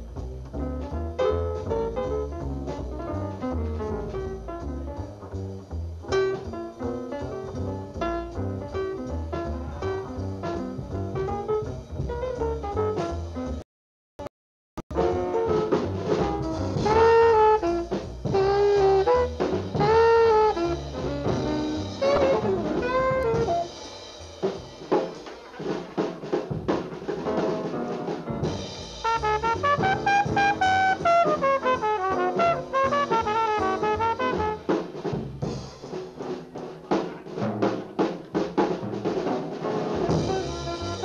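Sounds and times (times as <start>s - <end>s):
bass: 0.0s - 13.6s, 14.9s - 41.0s
drums: 0.0s - 13.6s, 14.9s - 41.0s
alto saxophone: 16.8s - 23.7s, 29.0s - 34.8s, 40.0s - 41.0s.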